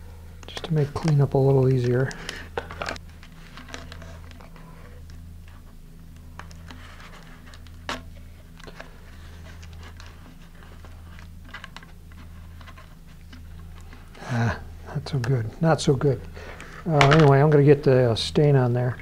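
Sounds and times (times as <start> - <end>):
steady low hum: 0.0 - 19.0
tape rustles and ticks: 0.4 - 14.3.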